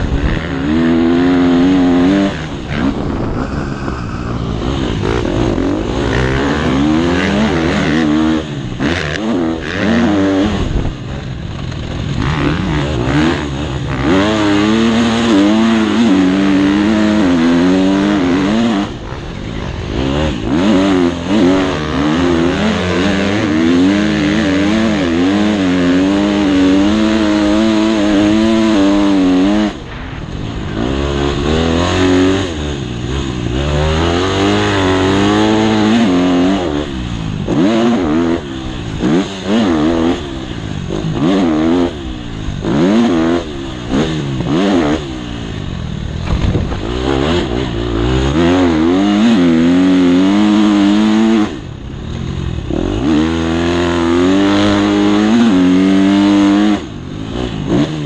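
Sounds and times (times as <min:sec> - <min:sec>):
motocross bike engine revving: 0:00.0 - 0:58.0.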